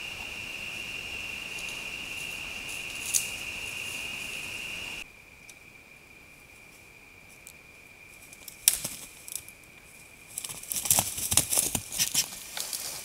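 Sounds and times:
hiss: 0.0s - 5.0s
crickets trilling: 0.0s - 13.0s.

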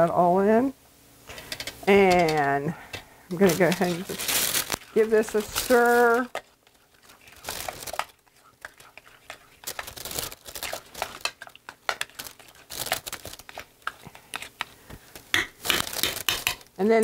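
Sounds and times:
spoon scraping in bowl: 1.3s - 14.8s
plastic bag crinkling: 3.3s - 16.8s.

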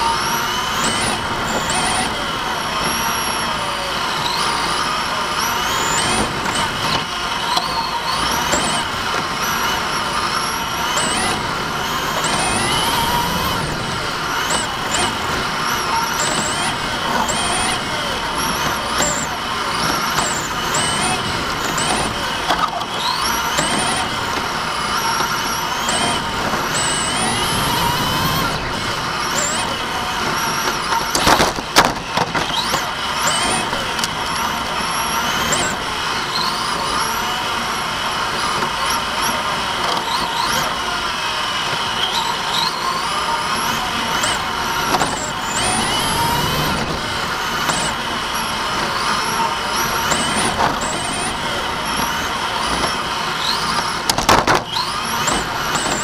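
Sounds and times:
electric toy car motor whining: 0.0s - 56.0s.

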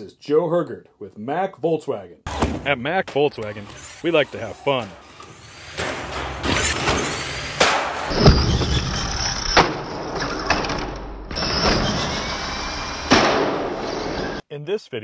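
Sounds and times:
toy truck wheels spinning on floor: 3.5s - 13.1s.

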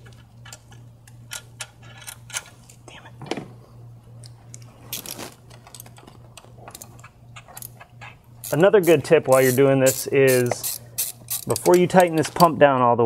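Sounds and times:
steady low hum: 0.0s - 13.0s
hand tools clinking on metal: 11.3s - 12.5s.

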